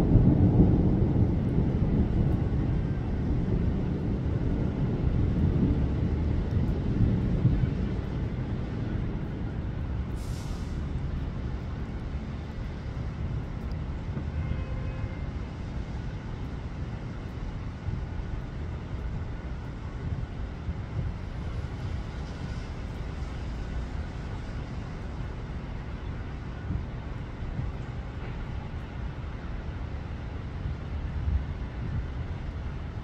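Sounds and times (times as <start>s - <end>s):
storm wind rumbling: 0.0s - 33.0s
brief hiss: 10.2s - 10.9s.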